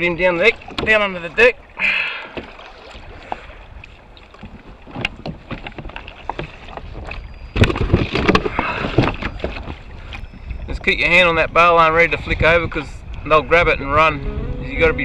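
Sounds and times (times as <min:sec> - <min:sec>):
knocks and rustling on kayak: 0:00.4 - 0:01.5, 0:02.2 - 0:10.6
wind on microphone: 0:06.7 - 0:15.0.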